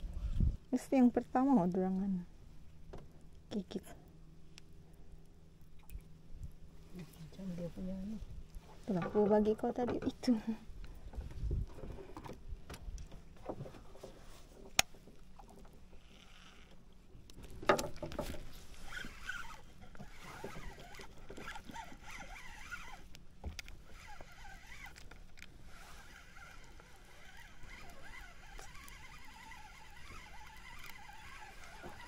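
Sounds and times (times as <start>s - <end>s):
fishing line rustling: 15.9s - 16.7s, 17.4s - 32.0s
fishing reel click: 20.2s - 32.0s.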